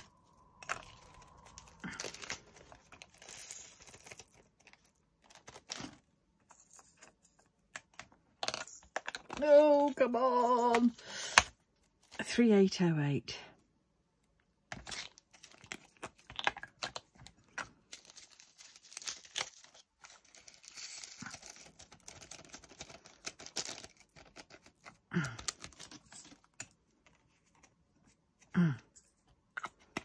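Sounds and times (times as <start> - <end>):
plastic bag crinkling: 0.0 - 6.0, 17.7 - 26.5.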